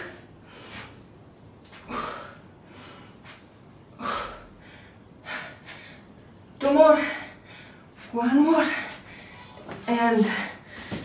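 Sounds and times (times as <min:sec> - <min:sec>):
woman breathing hard: 0:01.8 - 0:06.2.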